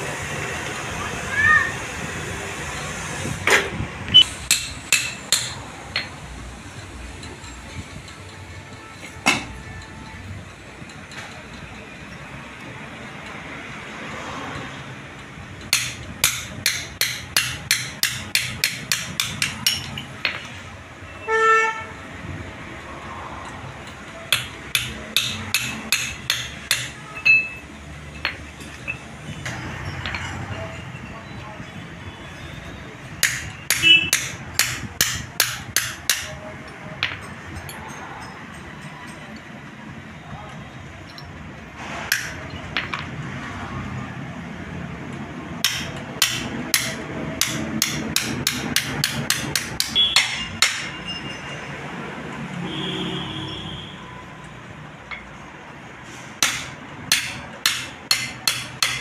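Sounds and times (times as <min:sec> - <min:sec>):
hammer striking metal: 0:03.5 - 0:06.2, 0:15.6 - 0:20.6, 0:24.2 - 0:30.8, 0:33.2 - 0:39.3, 0:41.9 - 0:43.1, 0:45.6 - 0:51.2, 0:56.4 - 0:59.0
metallic ring: 0:27.0 - 0:31.2, 0:37.1 - 0:39.4.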